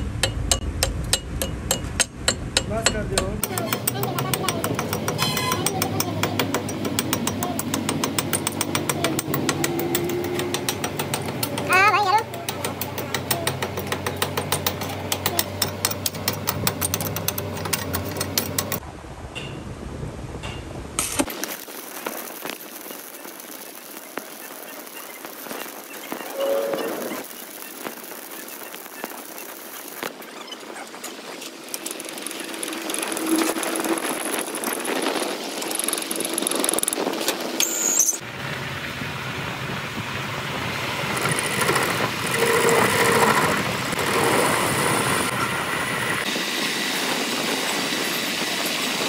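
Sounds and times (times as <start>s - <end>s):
metal lathe humming and rattling: 2.9s - 18.8s, 31.0s - 37.6s, 41.0s - 45.3s
lathe tool scraping steel: 3.4s - 7.3s, 26.1s - 27.4s, 30.9s - 37.0s, 41.2s - 45.3s
arc-welding crackle: 21.0s - 38.2s.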